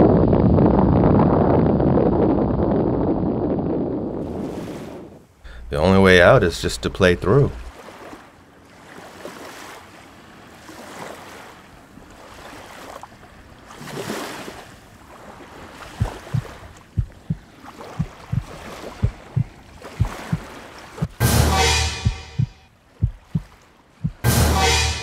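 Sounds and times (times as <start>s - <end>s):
small waves washing against rocks: 7.6s - 21.2s
heartbeat thumps: 16.0s - 24.6s.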